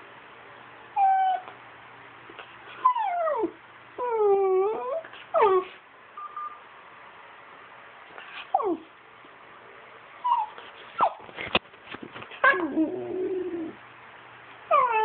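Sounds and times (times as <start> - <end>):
dog whining: 1.0 - 1.6, 2.7 - 6.6, 8.2 - 8.9, 10.2 - 11.3, 12.3 - 13.8, 14.7 - 15.0.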